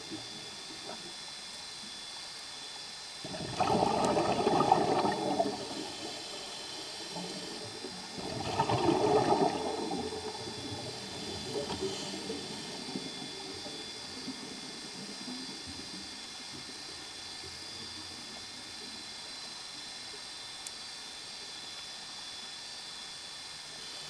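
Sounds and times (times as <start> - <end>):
faint underwater hiss: 0.0 - 24.0
exhaled breath bubbling underwater: 3.2 - 16.2.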